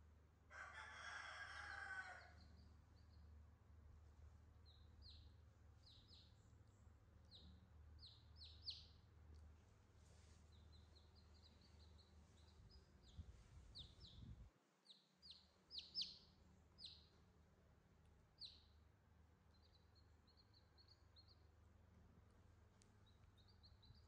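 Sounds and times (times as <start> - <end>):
chicks peeping: 2.2 - 3.3, 4.6 - 6.5, 7.3 - 9.1, 10.5 - 17.2, 18.4 - 18.8, 19.5 - 21.5, 23.0 - 24.0.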